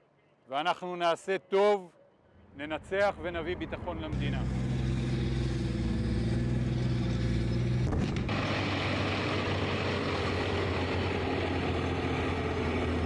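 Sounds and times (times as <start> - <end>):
tank diesel engine drone: 3.6 - 13.0
rough noisy tank engine: 4.1 - 13.0.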